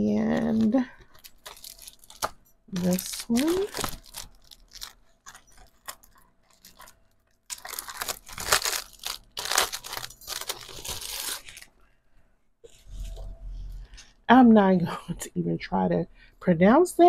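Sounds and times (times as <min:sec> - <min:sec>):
paper and plastic packaging rustling: 0:00.2 - 0:11.8.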